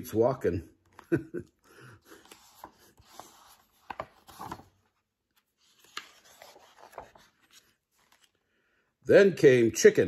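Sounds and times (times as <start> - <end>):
book pages turning: 2.0 - 8.5.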